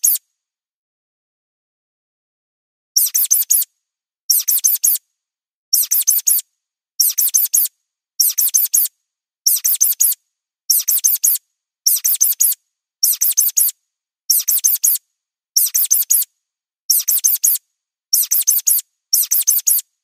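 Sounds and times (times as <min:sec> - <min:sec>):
mouse squeaks: 0:00.0 - 0:00.2, 0:03.0 - 0:03.7, 0:04.3 - 0:05.0, 0:05.7 - 0:06.4, 0:07.0 - 0:08.9, 0:09.5 - 0:15.0, 0:15.6 - 0:16.3, 0:16.9 - 0:19.9.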